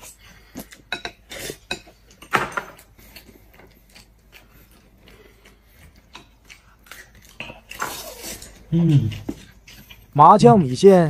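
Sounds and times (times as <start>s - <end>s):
eating noises: 2.8s - 11.0s.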